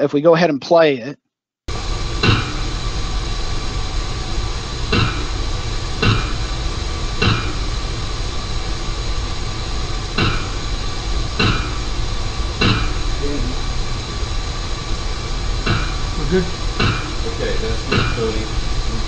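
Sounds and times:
steady hiss: 1.7 - 19.0
hammer striking manhole cover: 11.4 - 11.8.

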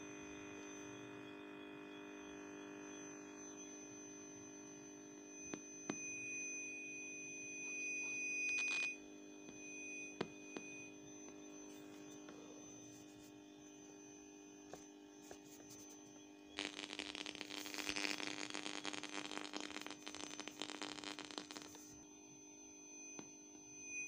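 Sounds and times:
radio speaker hum: 11.3 - 13.4, 14.7 - 22.1
radio static crackling: 16.6 - 22.0.

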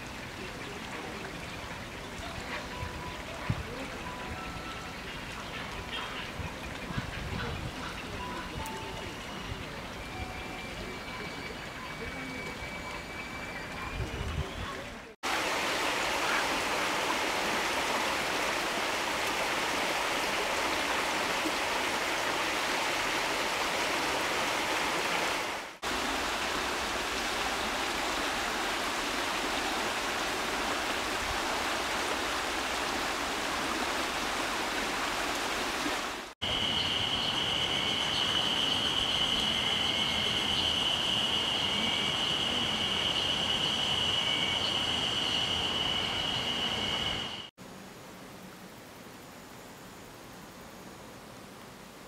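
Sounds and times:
mountain stream flowing over stones: 0.0 - 10.1, 14.2 - 36.9
steady high-pitched tone: 36.4 - 47.5.

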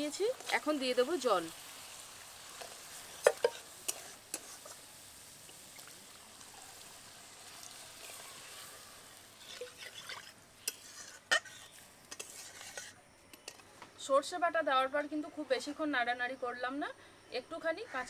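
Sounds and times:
water hissing in hot pan: 0.0 - 13.0
utensils knocking against pan: 3.2 - 3.6.

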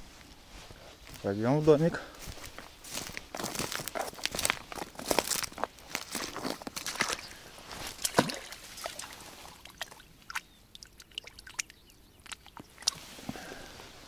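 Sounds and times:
water sloshing and dripping: 6.2 - 13.1
short splashes and clicks: 7.9 - 13.0.

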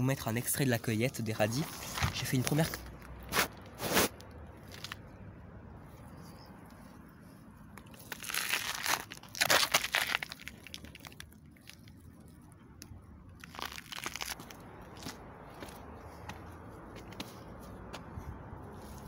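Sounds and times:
leaves rustling and roots tearing: 4.6 - 5.1, 6.2 - 15.1.

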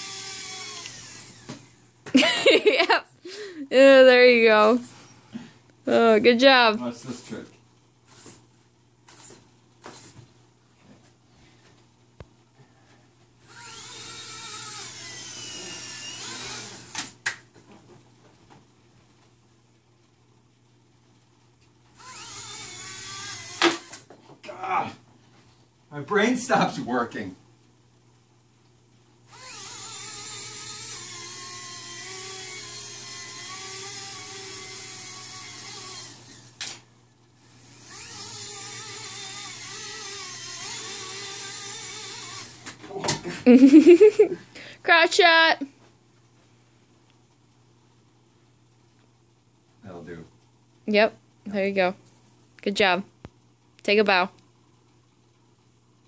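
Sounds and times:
toy helicopter rotor whining: 0.0 - 2.4, 13.4 - 17.1, 21.9 - 24.0, 29.2 - 36.8, 37.4 - 42.7.

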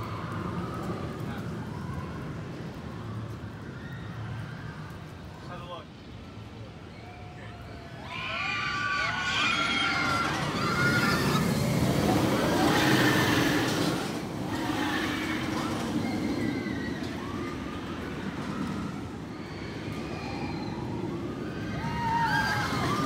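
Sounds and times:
roller coaster rumbling on track: 0.0 - 23.0
riders screaming: 6.9 - 23.0.

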